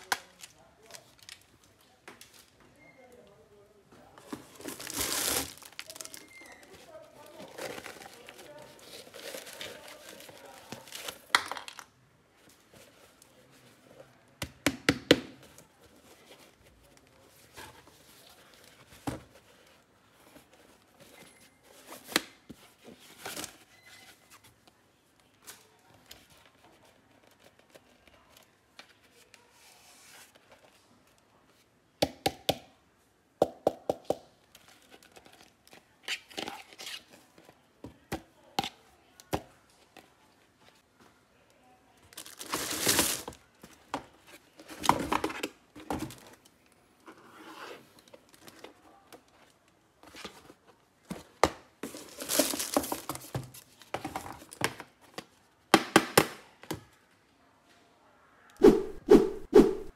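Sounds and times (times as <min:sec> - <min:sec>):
plastic wrap crinkling: 0:00.0 - 0:02.6, 0:04.2 - 0:11.9, 0:42.0 - 0:43.5, 0:51.8 - 0:53.9.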